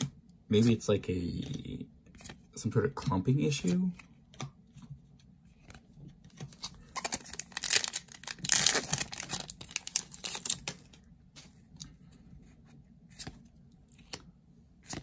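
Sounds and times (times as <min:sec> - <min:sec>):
foil wrapper tearing and crinkling: 0:06.9 - 0:10.9.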